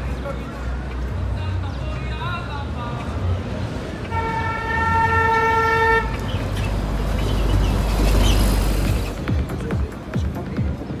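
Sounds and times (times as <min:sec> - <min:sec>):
bus passing by: 0:00.0 - 0:10.1
vehicle horn: 0:04.1 - 0:06.2.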